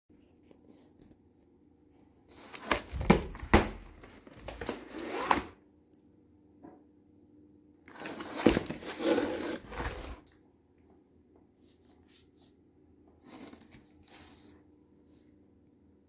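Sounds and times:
cardboard box rustling: 7.9 - 10.3.

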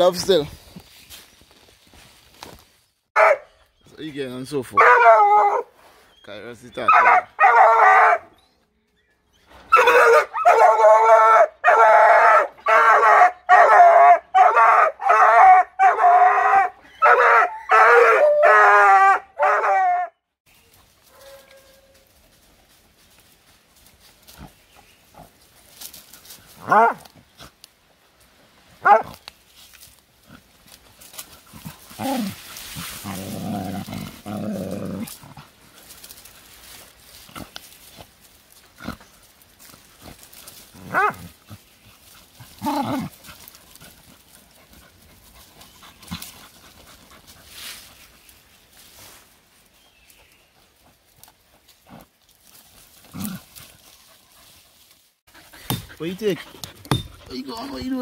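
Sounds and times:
dog yelping: 3.2 - 3.5, 4.8 - 5.7, 6.8 - 8.4, 9.7 - 20.1, 28.8 - 29.1
digging scratches and twig clicks: 20.5 - 58.0
dog growling: 33.0 - 35.4, 42.6 - 43.2.

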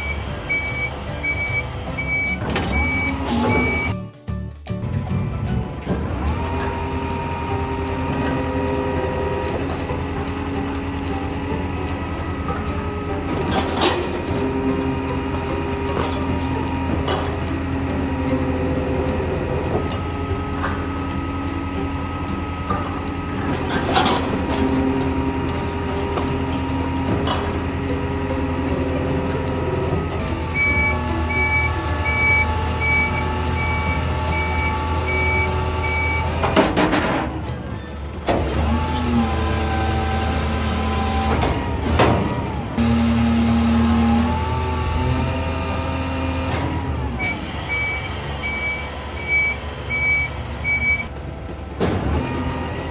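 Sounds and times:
reversing alarm beeping: 0.0 - 4.0, 30.4 - 36.4, 47.2 - 51.1
garbage truck packer hum: 0.0 - 52.9.

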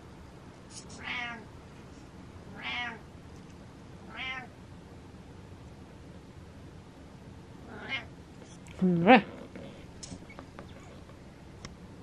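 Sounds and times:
cat meowing: 1.0 - 1.5, 2.5 - 3.0, 4.1 - 4.5, 7.7 - 8.1.

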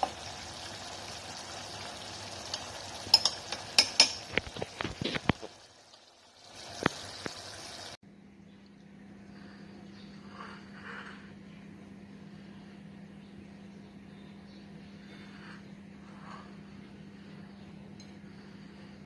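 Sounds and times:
pan sizzling: 0.0 - 8.0
metal spoon clinking on saucepan: 2.5 - 4.3.

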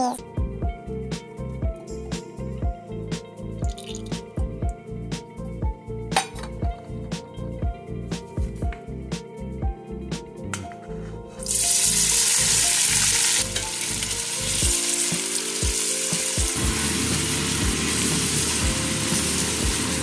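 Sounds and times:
onion sizzling in hot oil: 11.4 - 20.0.

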